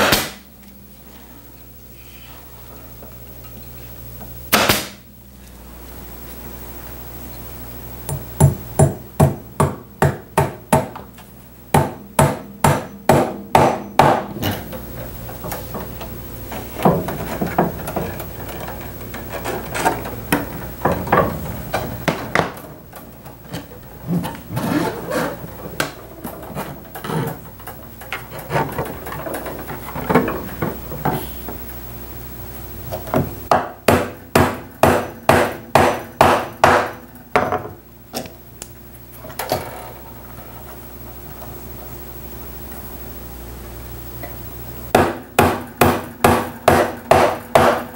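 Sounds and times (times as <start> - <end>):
quiet knocks and rubbing: 15.3 - 22.2.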